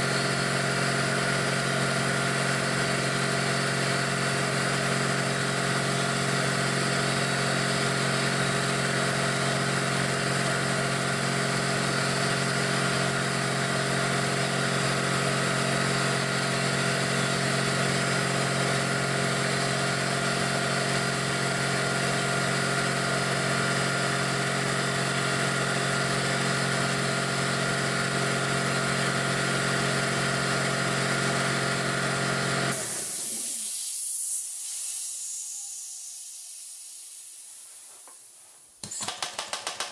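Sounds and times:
air compressor running: 0.0 - 39.9
hiss of escaping air: 32.7 - 38.8.

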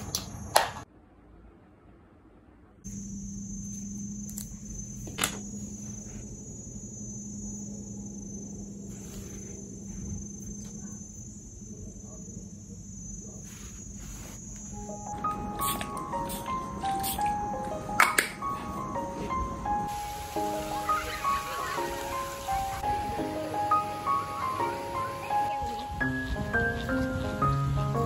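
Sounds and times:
low hum: 0.9 - 15.5
high-pitched whine: 2.9 - 17.8
soft music: 14.6 - 28.0.

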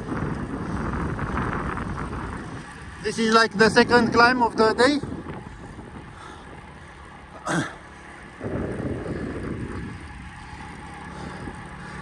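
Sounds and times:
wind rushing on microphone: 0.0 - 6.8, 8.4 - 10.4
bike tyres rolling on asphalt: 0.0 - 12.0.

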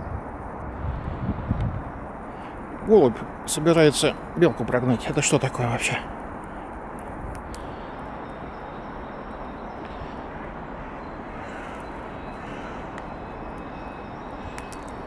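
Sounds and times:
distant traffic rumble: 0.0 - 15.0
faint clicks: 14.5 - 15.0.

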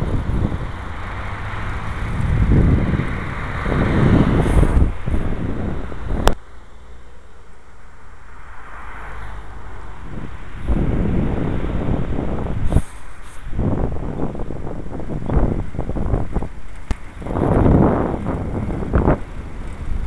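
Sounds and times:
wind rumbling on microphone: 0.0 - 6.4, 7.9 - 20.0
road traffic noise: 0.0 - 20.0.

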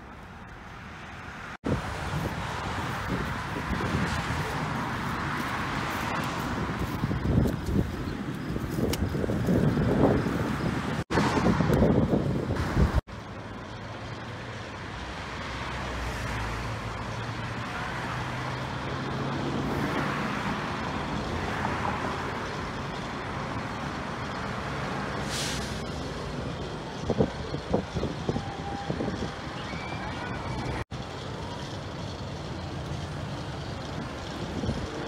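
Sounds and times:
outdoor background noise: 0.0 - 35.0
brief hiss: 25.2 - 25.9.

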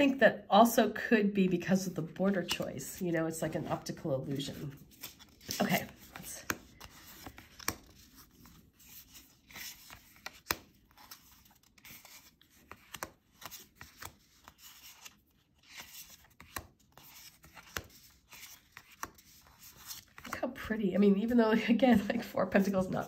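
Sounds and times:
cards rubbing together: 4.8 - 20.4.

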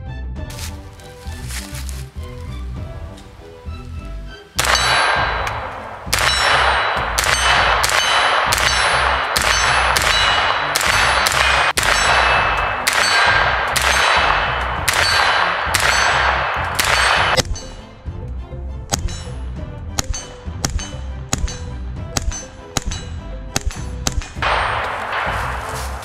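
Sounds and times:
rifle gunshots: 4.6 - 17.4, 24.1 - 26.0
metallic ringing: 4.6 - 17.8, 24.4 - 26.0.

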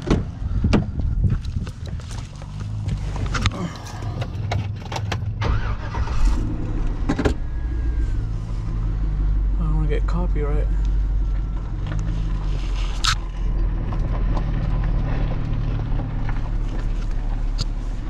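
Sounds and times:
truck door clicks and rattles: 0.0 - 1.6, 3.2 - 5.8
low vehicle rumble: 0.0 - 18.0.

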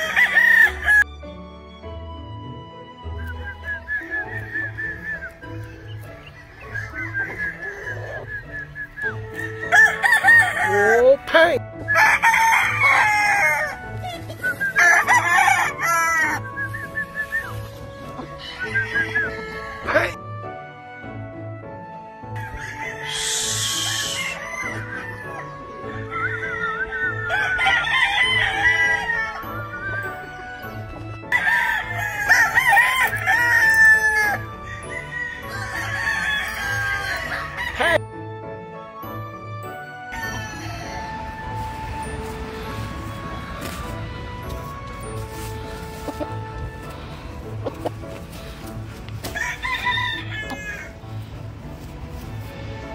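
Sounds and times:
roosters crowing: 0.0 - 1.0, 3.4 - 20.2, 22.3 - 38.0, 39.7 - 52.9
music with steady beat: 11.2 - 19.6, 38.0 - 52.9.

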